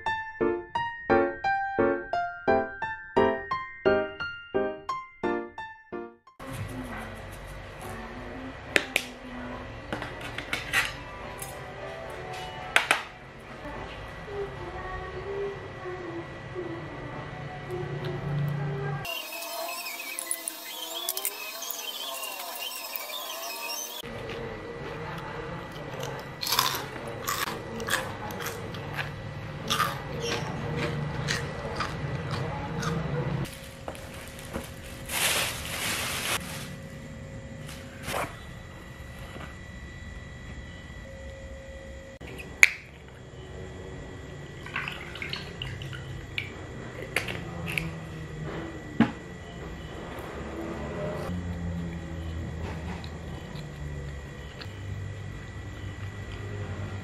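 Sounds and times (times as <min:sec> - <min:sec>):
crunching fried shrimp: 0:25.7 - 0:35.5.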